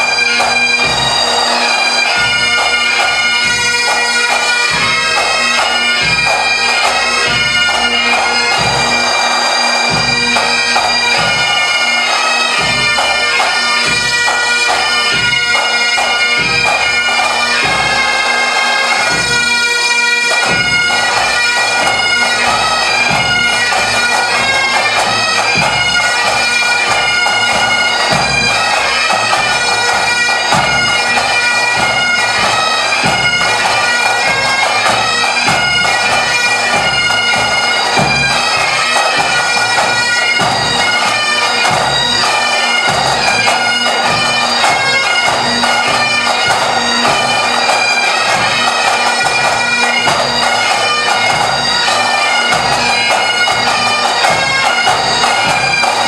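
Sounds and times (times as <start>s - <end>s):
drums keeping time: 0.0s - 19.6s, 20.2s - 56.0s
bagpipes with drones: 0.0s - 56.0s.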